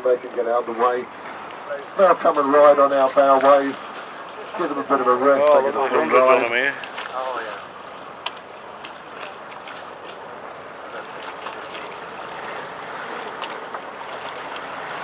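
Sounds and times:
water rushing along boat hull: 0.0 - 15.0
small sharp splashes: 6.1 - 15.0.

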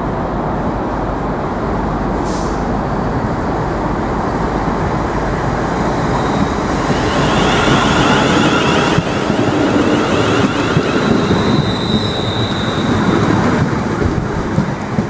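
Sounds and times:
electric train approaching: 0.0 - 15.0.

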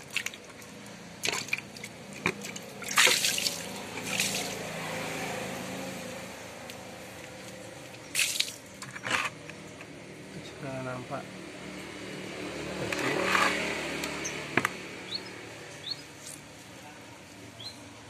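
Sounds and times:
water splashes: 0.0 - 5.4
water dripping on concrete: 7.9 - 8.7.

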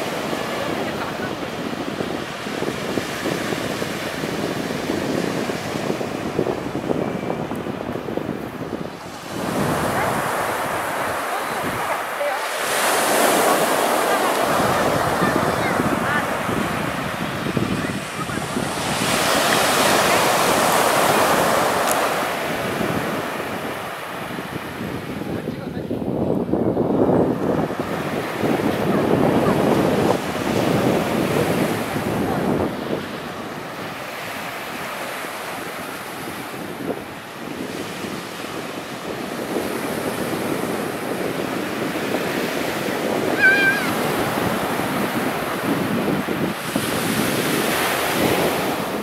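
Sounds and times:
surf washing up sandy beach: 0.0 - 49.0
brief high call: 43.4 - 44.0.

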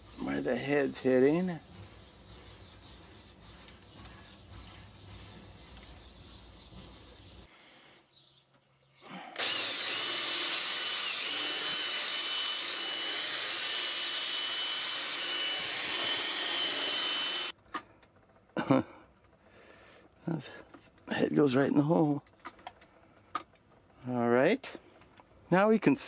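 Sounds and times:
power drill boring into wood: 9.4 - 17.5.

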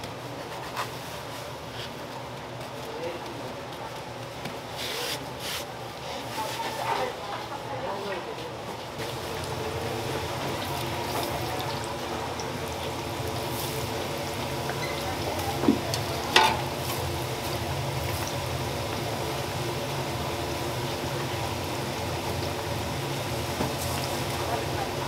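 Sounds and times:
oil sizzling in deep fryer: 8.9 - 25.0.

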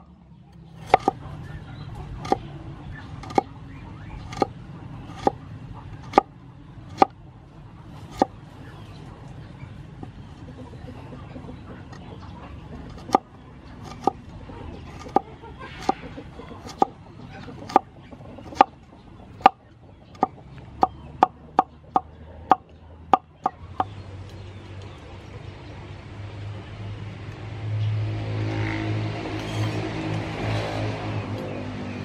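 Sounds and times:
cleaver chopping on wooden board: 0.8 - 1.2, 3.2 - 3.5, 4.3 - 4.5, 5.1 - 5.4, 6.1 - 6.3, 6.9 - 7.1, 8.1 - 8.3, 12.9 - 13.2, 13.8 - 14.2, 14.9 - 15.2, 15.8 - 16.0, 16.6 - 16.9, 17.7 - 17.9, 18.5 - 18.7, 20.2 - 22.6.

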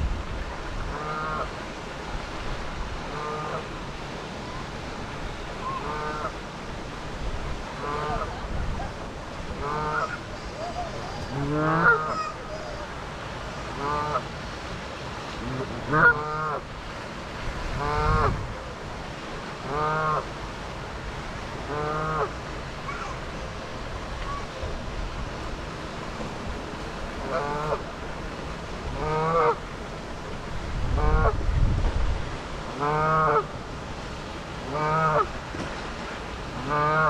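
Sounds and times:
geese honking: 9.6 - 10.2, 11.5 - 12.3, 15.9 - 16.6.

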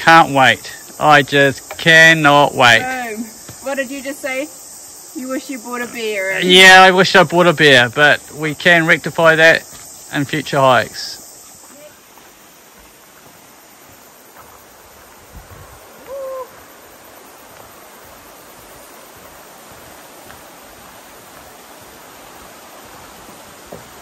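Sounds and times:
river rushing: 5.2 - 24.0
short hoot: 16.0 - 16.6.

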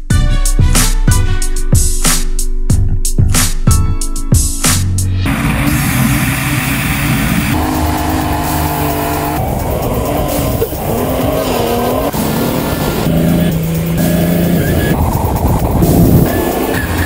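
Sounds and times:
car engine revving: 5.2 - 17.0
tyres squealing: 5.7 - 15.0.

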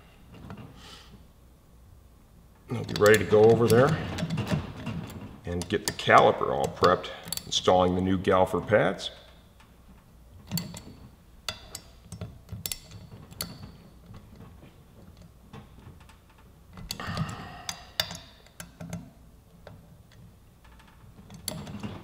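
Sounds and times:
hand ratchet clicking: 2.7 - 7.7, 16.0 - 19.0.

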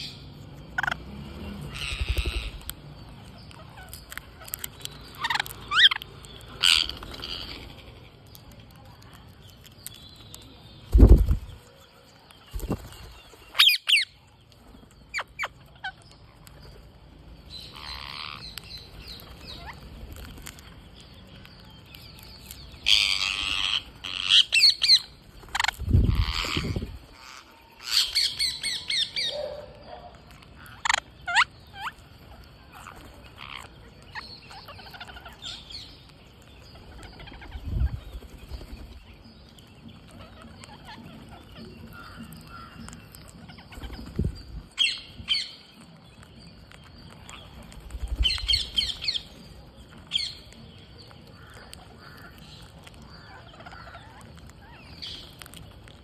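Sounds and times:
parakeets squawking: 0.0 - 8.2, 17.6 - 18.6, 22.6 - 29.5, 30.1 - 36.0, 40.0 - 45.6, 51.3 - 55.6.

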